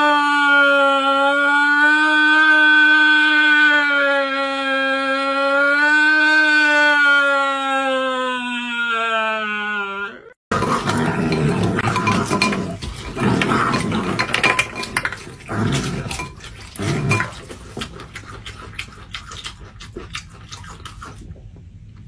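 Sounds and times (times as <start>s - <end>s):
wet crunching and chewing: 10.5s - 22.0s.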